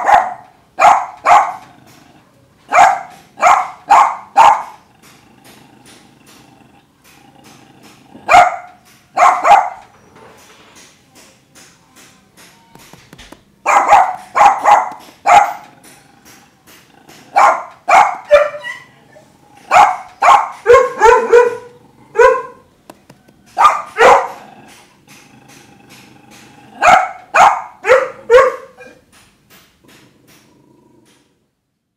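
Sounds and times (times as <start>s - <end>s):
dog barking: 0.0s - 1.7s, 2.7s - 4.8s, 8.3s - 9.9s, 13.6s - 15.7s, 17.3s - 18.9s, 19.7s - 22.6s, 23.6s - 24.4s, 26.8s - 29.0s.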